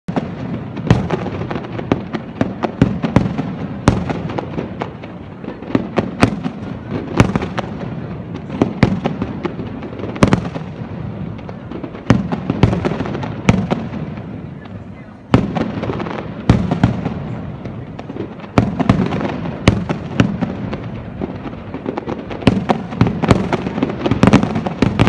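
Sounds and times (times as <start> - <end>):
fireworks bangs and crackles: 0.1 - 25.0
loud firework bangs: 0.1 - 25.0.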